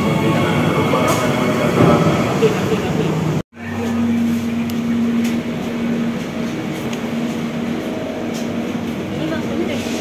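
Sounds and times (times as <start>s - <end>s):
train car electric hum: 0.0s - 10.0s.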